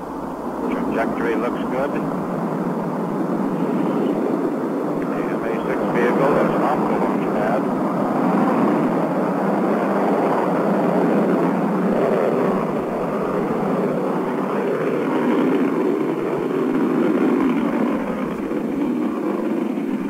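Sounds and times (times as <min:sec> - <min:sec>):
rocket engines rumbling: 0:00.0 - 0:20.0.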